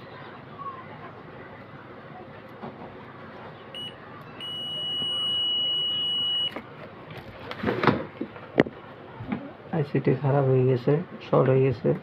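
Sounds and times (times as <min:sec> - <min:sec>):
multimeter continuity beeping: 0:03.7 - 0:06.6.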